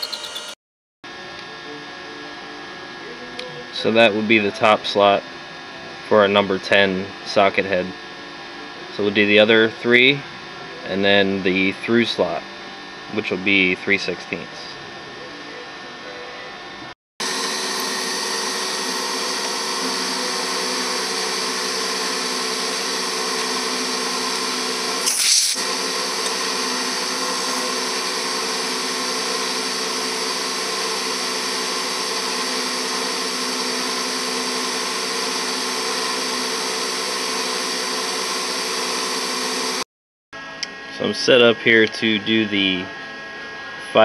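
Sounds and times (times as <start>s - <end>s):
milling machine whine: 0.0s - 9.4s, 10.4s - 39.8s
rasp of end mill cutting: 18.8s - 37.5s.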